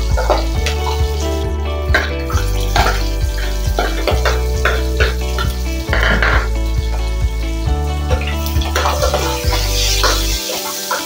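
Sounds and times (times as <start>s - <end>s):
background music with steady beat: 0.0s - 11.0s
beef and onions sizzling: 0.0s - 11.0s
metal spoon scraping pot: 8.5s - 11.0s.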